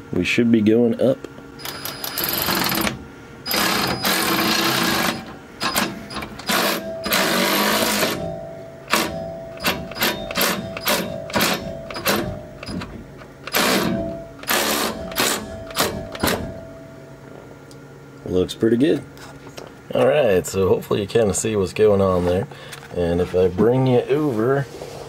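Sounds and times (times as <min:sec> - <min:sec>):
cordless ratchet motor whining: 0:01.6 - 0:08.2.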